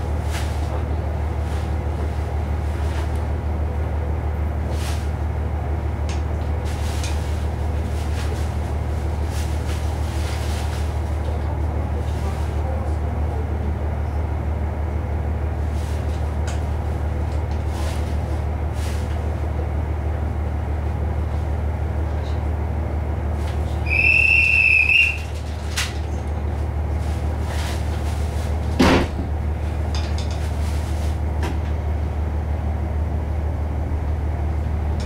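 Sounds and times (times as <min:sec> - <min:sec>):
diesel railcar droning: 0:00.0 - 0:35.0
high whistle: 0:23.9 - 0:25.3
sharp clunk: 0:28.8 - 0:29.3.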